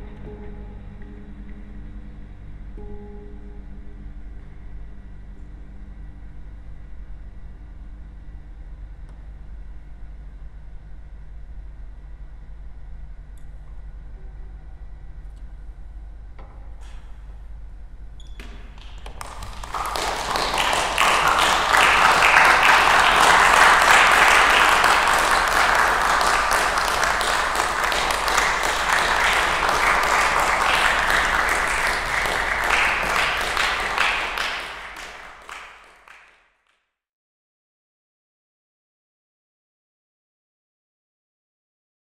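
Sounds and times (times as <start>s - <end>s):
audience applauding: 18.7s - 36.3s
held musical notes: 19.3s - 36.1s.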